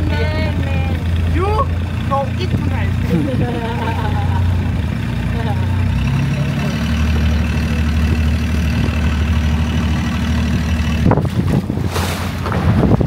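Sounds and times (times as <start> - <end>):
boat engine idling: 0.0 - 13.0
wind gusting on microphone: 8.0 - 13.0.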